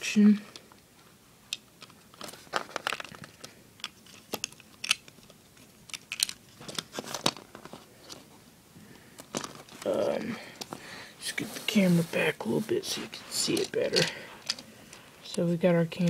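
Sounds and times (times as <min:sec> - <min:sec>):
plastic bricks clicking and rattling: 0:01.5 - 0:08.2, 0:09.2 - 0:09.9, 0:13.5 - 0:14.6.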